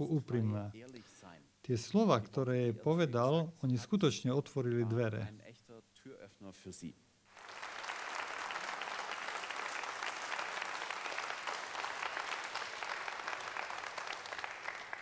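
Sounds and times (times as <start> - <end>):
audience applauding: 7.3 - 15.0.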